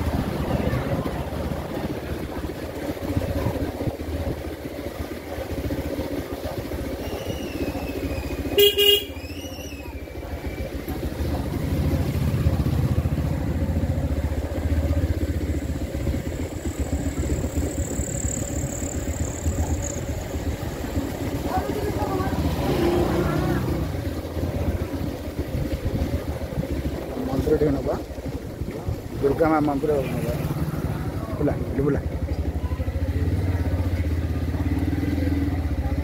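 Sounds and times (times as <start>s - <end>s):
motorcycle engine rumble: 0.0s - 36.0s
horn toot: 8.4s - 9.2s.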